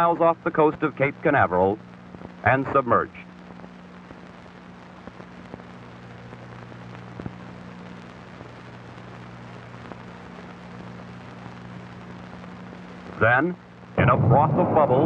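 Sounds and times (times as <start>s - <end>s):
crackles: 0.0s - 15.0s
film soundtrack hiss: 0.0s - 15.0s
low hum: 13.8s - 15.0s.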